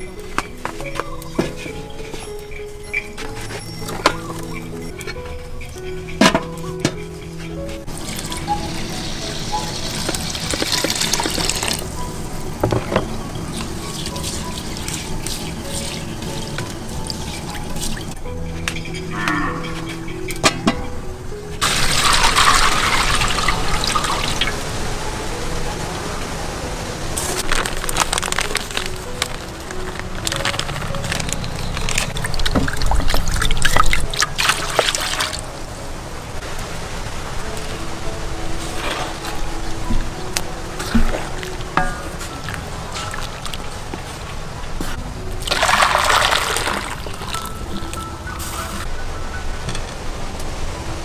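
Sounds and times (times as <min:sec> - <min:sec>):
liquid pouring into a pot: 0:21.6 - 0:24.5, 0:45.4 - 0:47.4.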